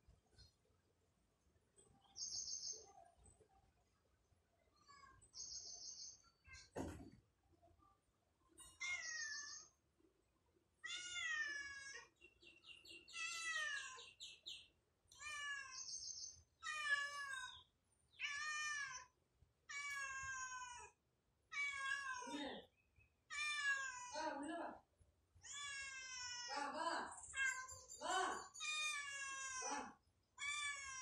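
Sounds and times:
cat meowing: 10.8 - 12.1, 13.1 - 14.0, 18.2 - 19.1, 19.7 - 22.4, 23.3 - 24.2, 25.4 - 26.6, 28.6 - 31.0.

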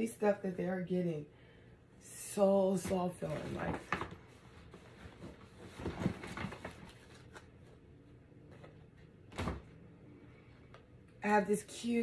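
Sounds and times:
clothes and fabric bag rustling: 2.7 - 7.4.

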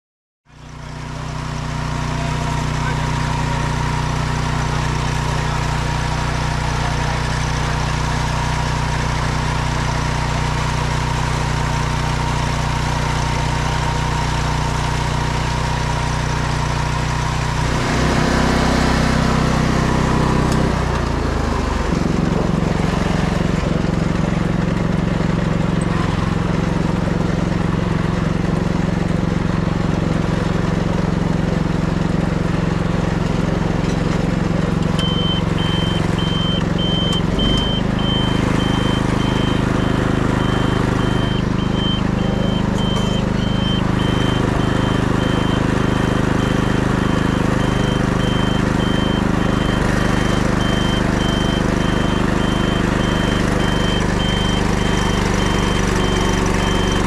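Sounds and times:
weeder engine running: 0.5 - 57.0
high-pitched beeps: 35.0 - 57.0.

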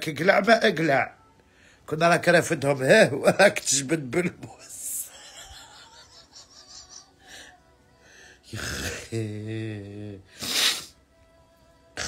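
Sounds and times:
woman wheezing laughter: 5.1 - 7.3
loud rasping inhale: 10.3 - 11.0.

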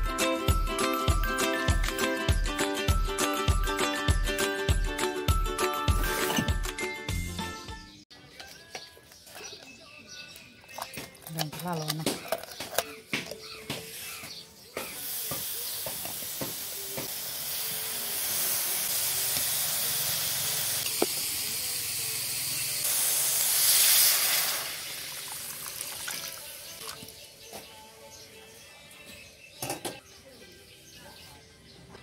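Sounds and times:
fish hissing in hot wok: 14.8 - 26.1
water sizzling in hot wok: 14.9 - 26.9.

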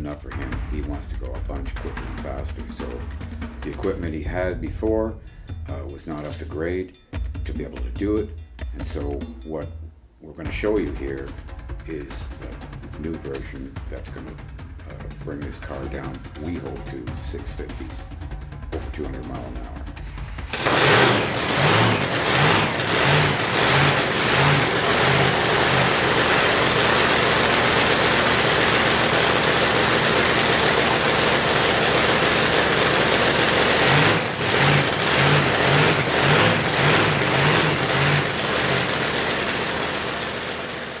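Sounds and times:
drag racing engine with lumpy lope: 10.5 - 41.0.

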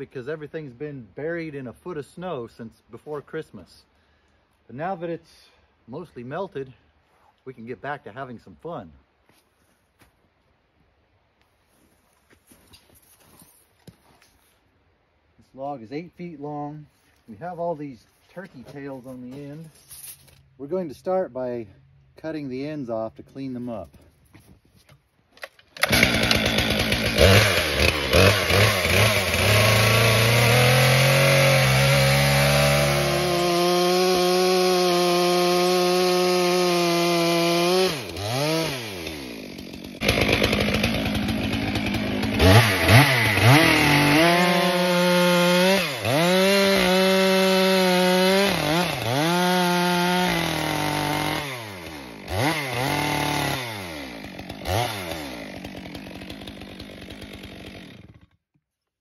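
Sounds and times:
chainsaw cutting log: 25.4 - 58.4.

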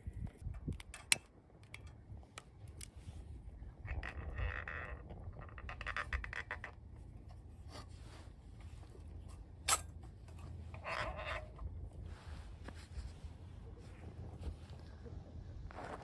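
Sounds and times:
small metal clicks: 0.3 - 3.0
metal lantern scraping: 3.8 - 12.4.

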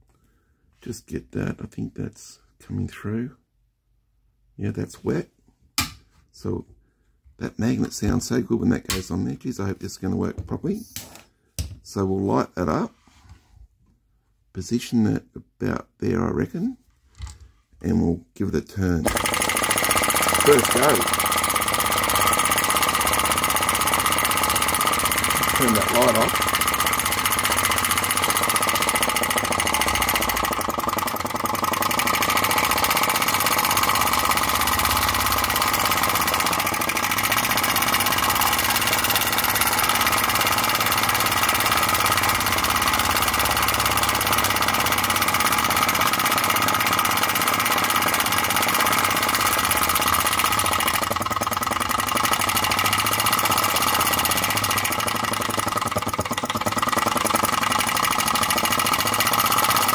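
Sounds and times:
engine fast mechanical clatter: 19.0 - 59.9.

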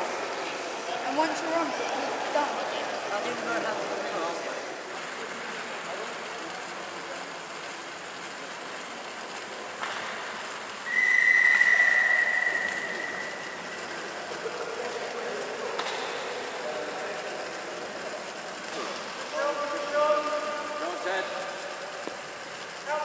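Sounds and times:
bicycle tyres humming on rollers: 0.0 - 23.0
high whistle tone: 10.8 - 13.8.

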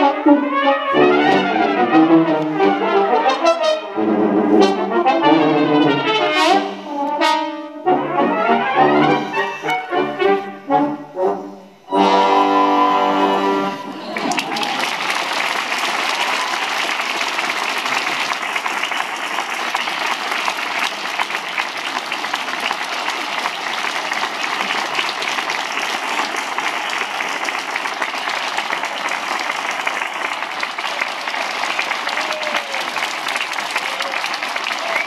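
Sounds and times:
audience applauding: 11.9 - 35.0.

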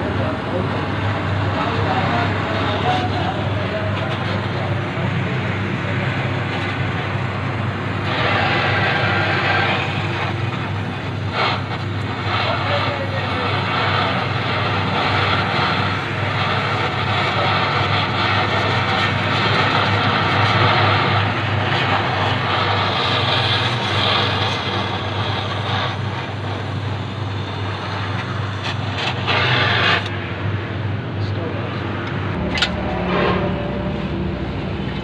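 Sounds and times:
welding torch hissing: 0.1 - 30.8.

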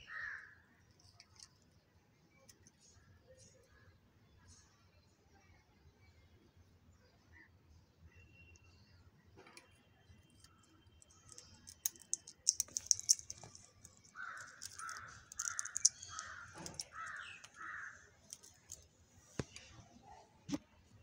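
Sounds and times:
beak clicking on tassel: 11.3 - 17.7.

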